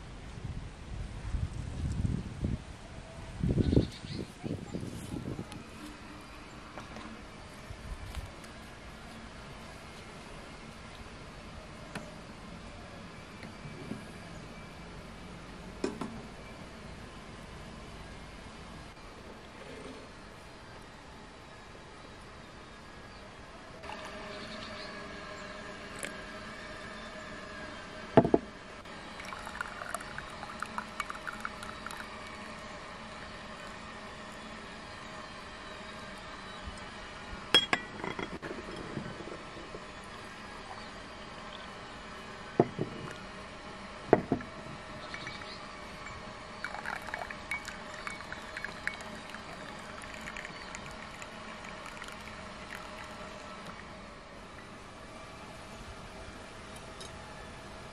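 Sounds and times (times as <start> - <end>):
clunk on wooden table: 28.2 - 28.4, 44.1 - 44.4
water trickling into glass: 29.0 - 32.7, 45.0 - 53.9.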